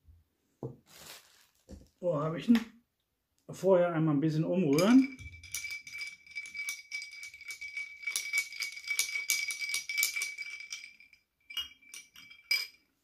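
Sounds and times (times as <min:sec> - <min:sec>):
glass ringing: 0:04.7 - 0:12.9.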